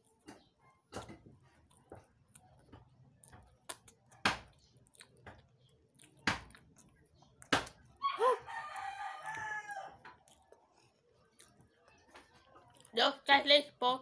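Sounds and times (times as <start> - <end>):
rooster crowing: 8.0 - 10.1.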